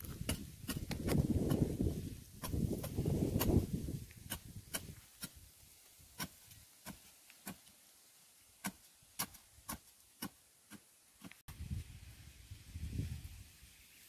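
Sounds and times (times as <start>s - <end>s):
digging bar stabbing hard earth: 0.0s - 5.5s, 6.1s - 7.7s, 8.6s - 11.4s.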